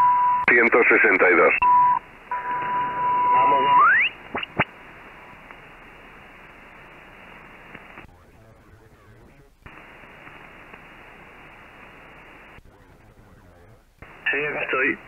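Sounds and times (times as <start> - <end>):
radio band hiss: 0.4 - 15.0
garbled radio voice: 0.5 - 1.6, 14.1 - 15.0.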